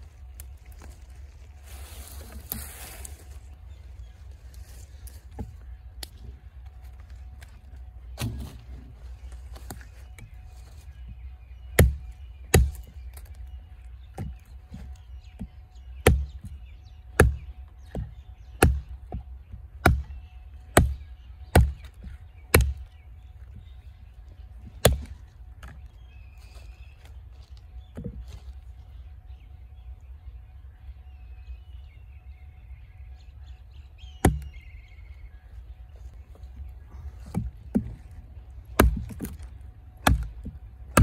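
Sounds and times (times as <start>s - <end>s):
knife chopping tree branch: 8.2s - 8.6s, 11.7s - 13.4s, 14.1s - 16.5s, 17.1s - 19.2s, 19.8s - 20.2s, 20.8s - 22.9s, 24.8s - 25.8s, 34.2s - 34.6s, 38.7s - 41.0s.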